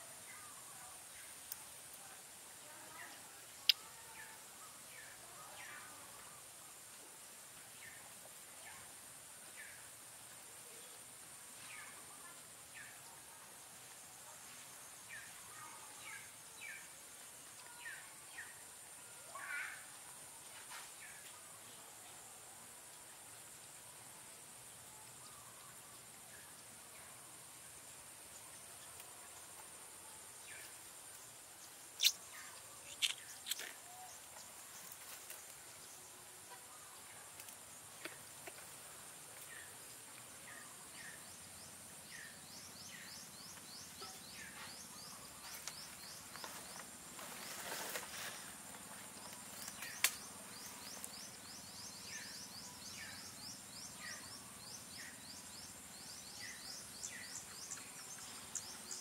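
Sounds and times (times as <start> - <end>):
insects droning: 0.0 - 59.0
short rising insect chirps: 32.0 - 33.7
short rustle: 46.4 - 49.7.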